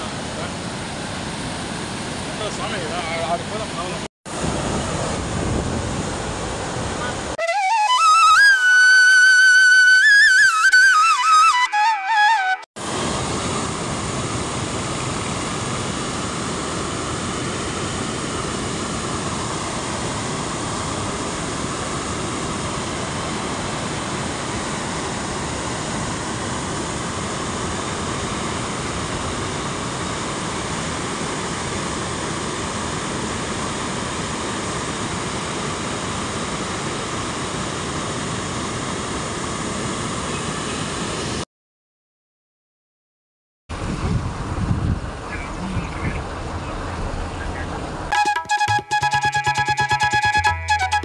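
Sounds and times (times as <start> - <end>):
water rushing over a weir: 12.8 - 41.4.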